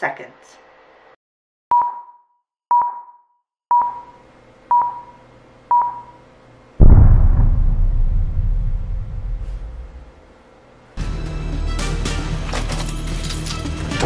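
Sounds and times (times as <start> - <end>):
explosion with deep rumble: 6.8 - 10.2.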